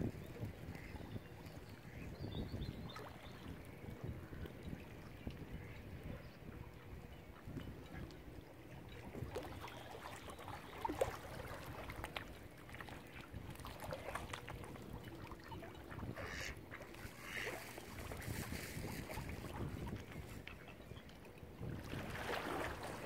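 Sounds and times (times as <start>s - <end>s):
ducks calling: 15.8s - 18.3s.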